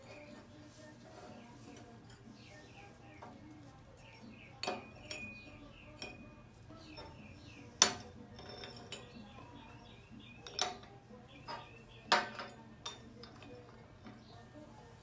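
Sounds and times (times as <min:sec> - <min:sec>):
metal tubes clinking: 0:04.0 - 0:15.0.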